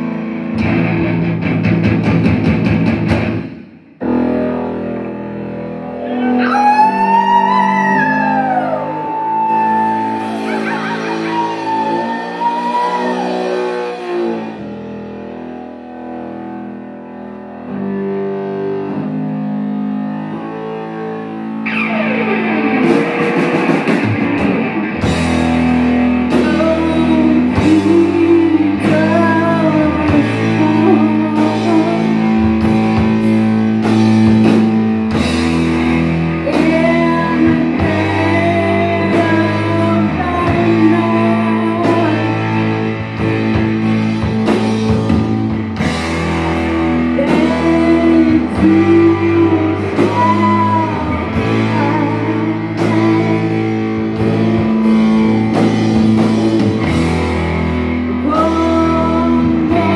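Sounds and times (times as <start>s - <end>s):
live rock band playing: 0.0s - 59.9s
woman singing: 6.4s - 14.4s, 26.3s - 32.7s, 36.4s - 42.7s, 47.1s - 54.9s, 58.2s - 59.9s.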